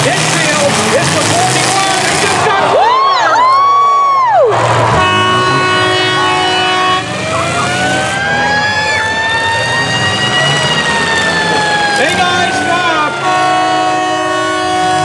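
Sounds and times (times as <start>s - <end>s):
car engines rumbling: 0.0s - 15.0s
crowd noise: 0.0s - 15.0s
siren wailing: 2.7s - 15.0s
loud horn blast: 4.5s - 8.2s, 12.0s - 15.0s.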